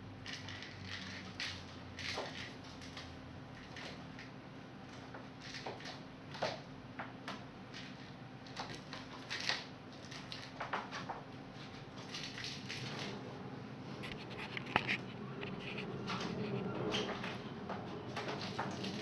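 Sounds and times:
kitten scratching and rustling paper: 0:00.2 - 0:06.6, 0:07.7 - 0:13.2, 0:13.9 - 0:19.0.

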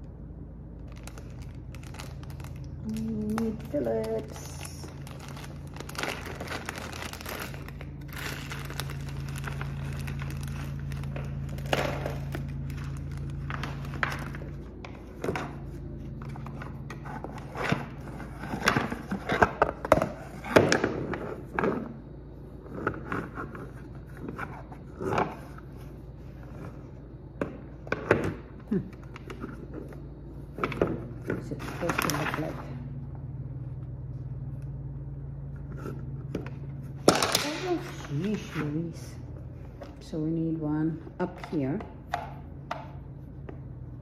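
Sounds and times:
low hum: 0:00.0 - 0:44.0
plastic bag crinkling: 0:00.7 - 0:19.9.

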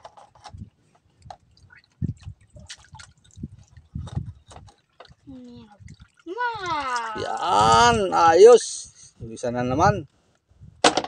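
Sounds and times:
water dripping: 0:01.1 - 0:08.1
hands splashing in water: 0:01.6 - 0:03.9.

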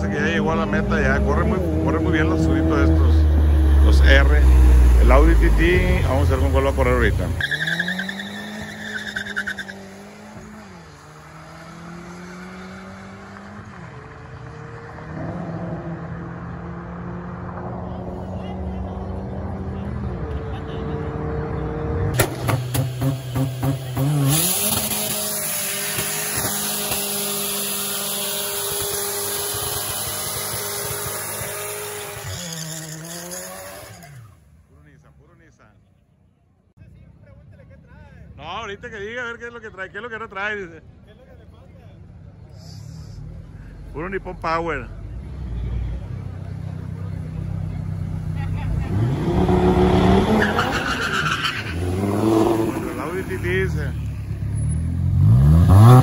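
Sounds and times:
car engine accelerating: 0:00.0 - 0:34.5, 0:44.7 - 0:56.0
tyre squeal: 0:07.4 - 0:10.8, 0:50.2 - 0:52.9.

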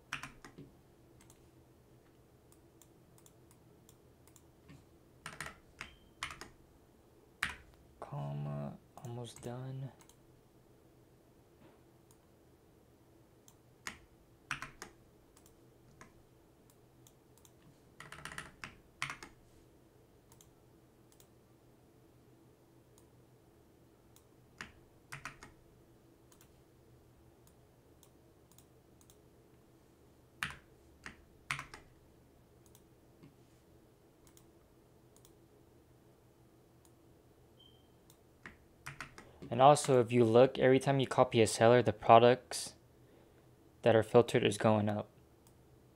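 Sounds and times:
faint steady hum: 0:00.0 - 0:45.9
keyboard and mouse clicks: 0:00.1 - 0:01.4, 0:02.5 - 0:06.6, 0:13.4 - 0:19.4, 0:20.3 - 0:20.5, 0:21.1 - 0:21.3, 0:24.1 - 0:25.6, 0:26.3 - 0:26.6, 0:27.4 - 0:29.2, 0:30.4 - 0:31.9, 0:32.6 - 0:32.9, 0:34.2 - 0:34.5, 0:38.0 - 0:40.0.

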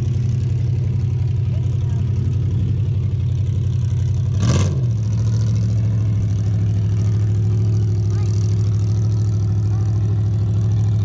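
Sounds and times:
vehicle engine idling and revving: 0:00.0 - 0:11.0.

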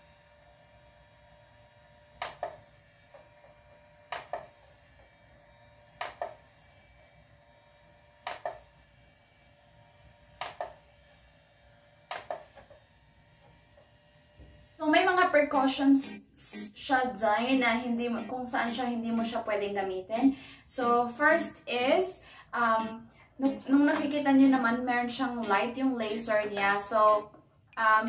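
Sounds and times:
hair removal device double clicks: 0:02.2 - 0:02.6, 0:04.1 - 0:04.5, 0:06.0 - 0:06.4, 0:08.2 - 0:08.7, 0:10.4 - 0:10.8, 0:12.1 - 0:12.6.

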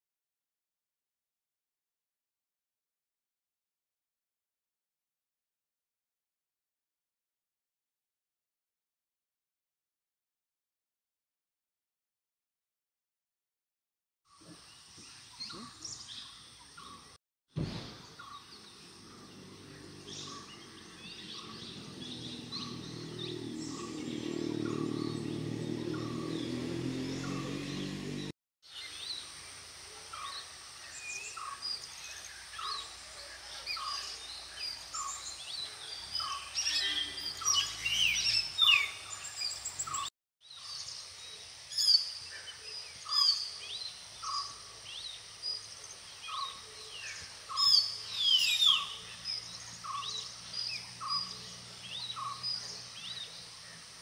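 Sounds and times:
birds chirping: 0:14.3 - 0:17.2, 0:17.8 - 0:29.2, 0:30.1 - 0:54.0
low humming drone: 0:18.5 - 0:28.3.

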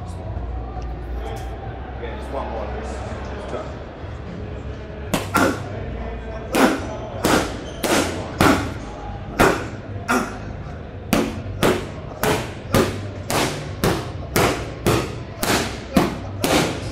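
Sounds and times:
punches smacking focus mitts: 0:05.2 - 0:05.7, 0:06.5 - 0:08.8, 0:11.1 - 0:16.9.

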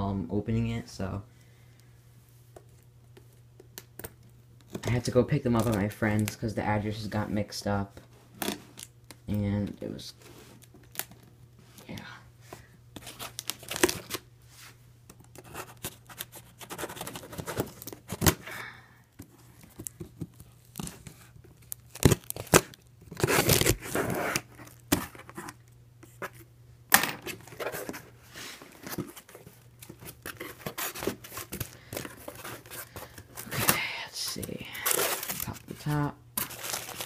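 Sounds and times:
tape and cardboard tearing: 0:20.6 - 0:25.6, 0:29.8 - 0:33.8.

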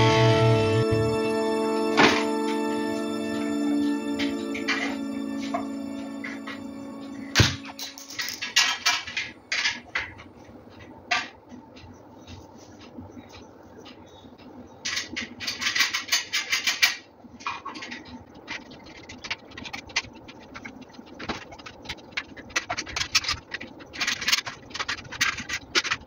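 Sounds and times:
metal parts scraping: 0:07.7 - 0:09.8, 0:14.9 - 0:26.0.

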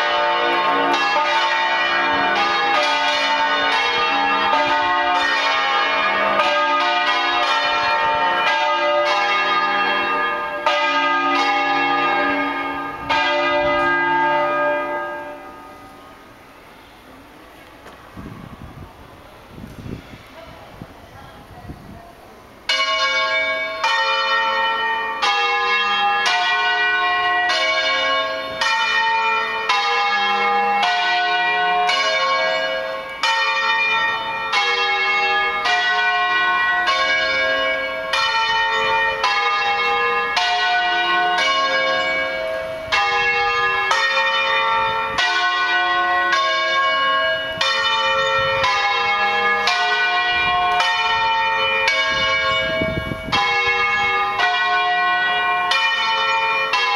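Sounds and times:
church bells clanging: 0:00.0 - 0:21.9, 0:22.6 - 0:56.9.

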